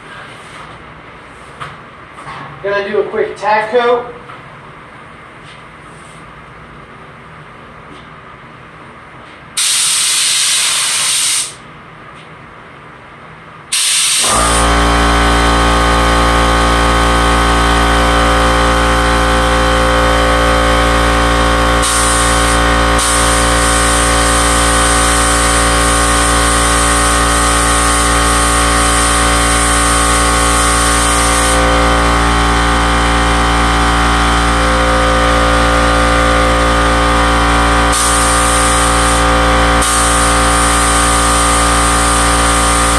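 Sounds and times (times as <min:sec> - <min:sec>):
air compressor humming: 0:09.6 - 0:11.6, 0:13.7 - 0:42.9
spray gun hissing: 0:09.6 - 0:11.6, 0:13.7 - 0:14.7, 0:21.8 - 0:31.7, 0:37.9 - 0:42.9.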